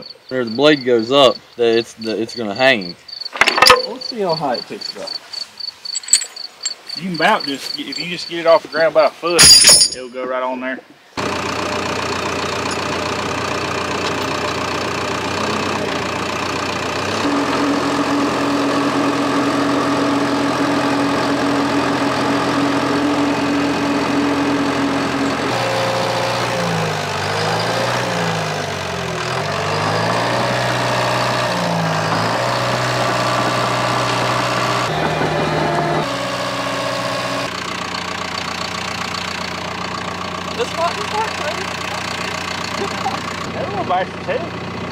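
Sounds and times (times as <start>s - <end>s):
diesel engine running: 0.0s - 9.0s, 11.2s - 44.9s.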